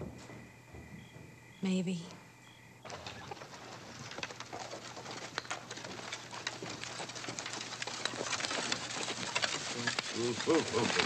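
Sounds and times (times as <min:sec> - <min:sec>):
chickens clucking: 0:02.8 - 0:11.0.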